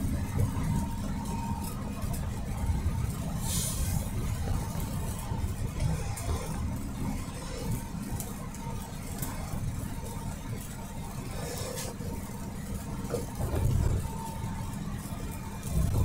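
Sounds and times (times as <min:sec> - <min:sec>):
vehicle engine and tyre rumble: 0:00.0 - 0:16.0.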